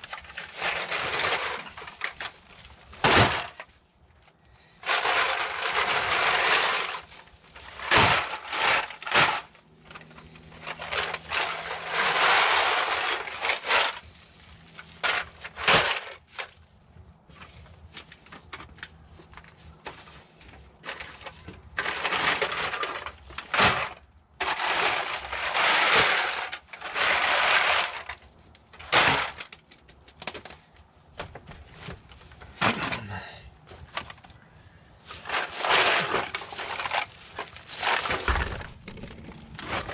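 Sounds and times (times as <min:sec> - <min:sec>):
cans crunching and clattering: 0:00.0 - 0:03.7, 0:04.3 - 0:16.6, 0:17.5 - 0:30.8, 0:32.0 - 0:39.9
plastic bags rustling: 0:00.0 - 0:18.4, 0:31.5 - 0:39.9.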